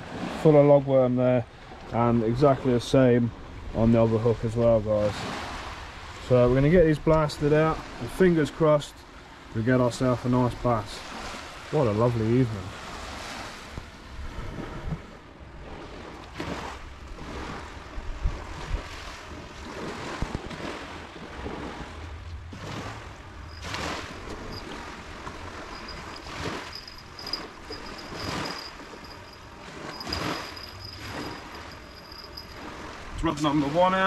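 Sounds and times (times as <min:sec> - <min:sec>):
waves washing onto beach: 0:00.0 - 0:34.0
wind buffeting microphone: 0:12.8 - 0:33.4.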